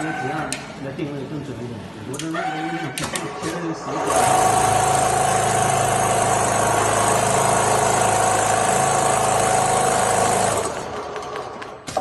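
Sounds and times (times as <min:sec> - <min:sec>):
sewing machine running: 0:03.8 - 0:11.8.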